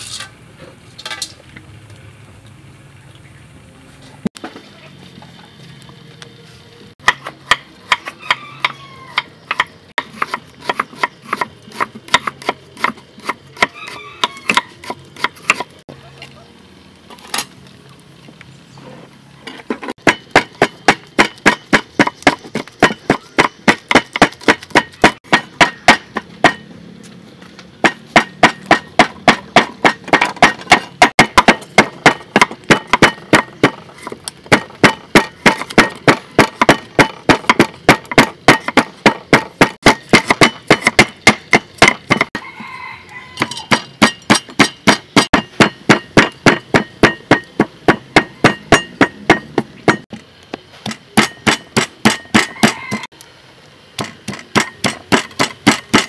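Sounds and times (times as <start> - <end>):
knife chopping on wooden board: 7.0 - 15.7, 20.0 - 26.6, 27.8 - 42.4.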